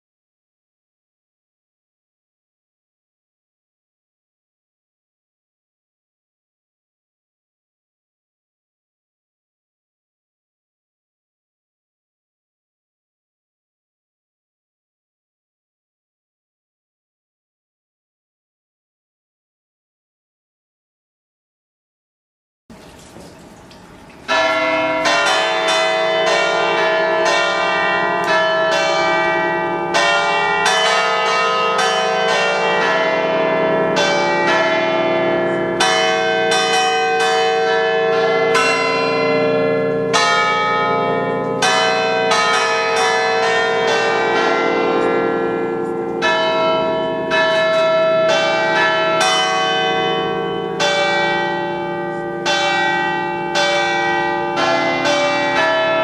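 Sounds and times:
church bells playing a tune: 24.3s - 56.0s.

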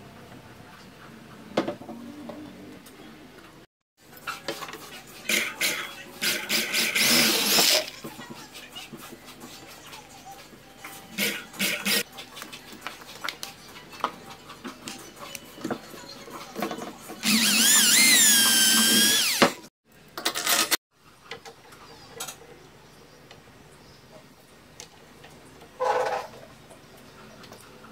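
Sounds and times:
electric drill whining: 17.2s - 19.7s.

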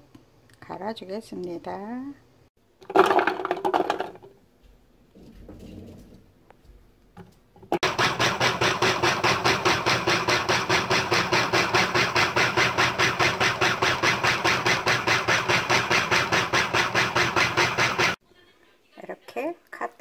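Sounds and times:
food processor chopping: 2.8s - 4.2s, 7.8s - 18.2s.

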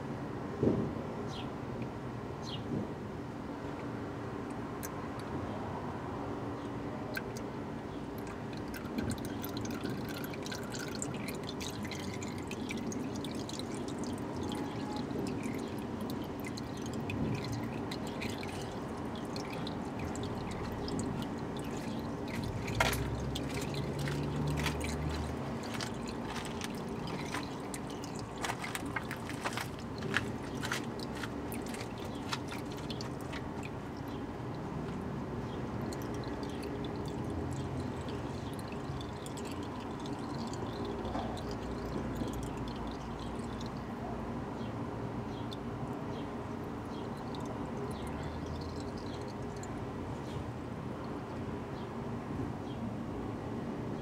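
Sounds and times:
oil trickling into plastic pan: 8.1s - 43.8s, 46.8s - 50.4s.

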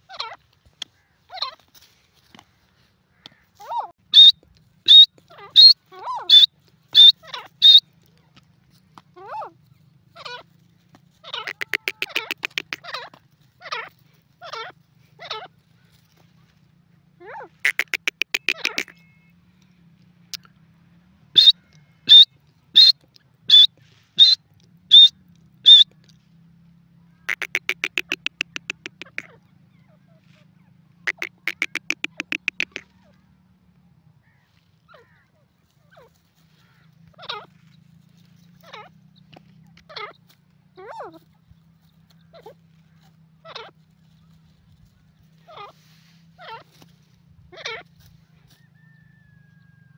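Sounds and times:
francolin calling: 4.1s - 4.3s, 4.9s - 7.8s, 11.4s - 12.8s, 17.6s - 19.1s, 21.4s - 22.9s, 23.5s - 25.9s, 27.3s - 29.3s, 31.1s - 32.9s.

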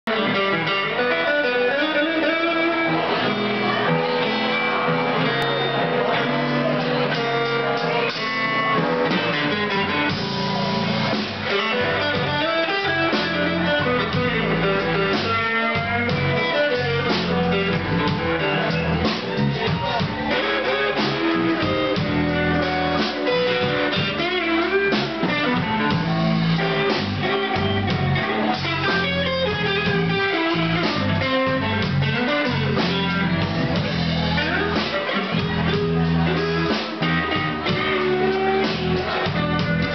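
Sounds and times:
electric guitar lines: 0.1s - 39.9s
live blues band playing: 0.1s - 39.9s.

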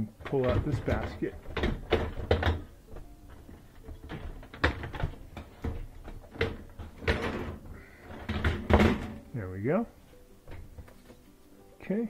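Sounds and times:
dishwasher rack knocks and rattles: 0.2s - 9.2s.

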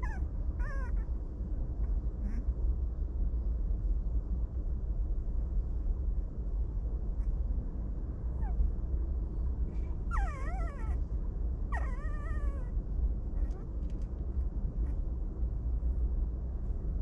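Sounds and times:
puppy whimpering: 0.0s - 1.1s, 2.2s - 2.5s, 10.1s - 11.0s, 11.7s - 12.8s, 13.4s - 13.7s
low rumble: 0.0s - 17.0s.

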